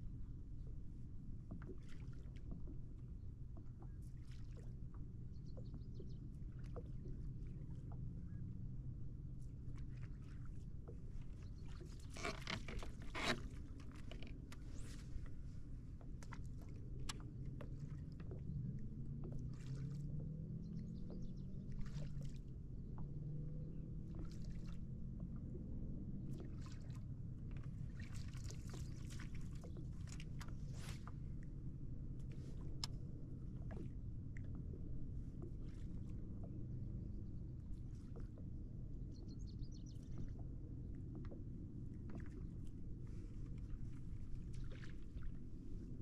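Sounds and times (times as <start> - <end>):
small splashes and clicks: 3.6 - 5.0, 9.5 - 23.1, 26.3 - 31.4, 32.1 - 36.8
steady low rumble: 14.4 - 46.0.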